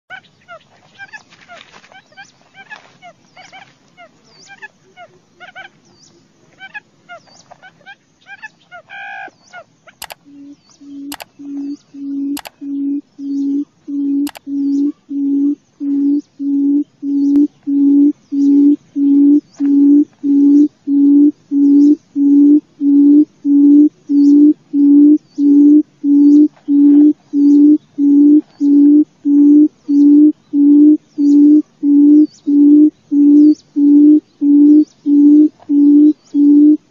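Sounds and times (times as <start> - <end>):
sharp clicks: 10.0 - 10.3, 11.1 - 11.3, 12.3 - 12.6, 14.2 - 14.5.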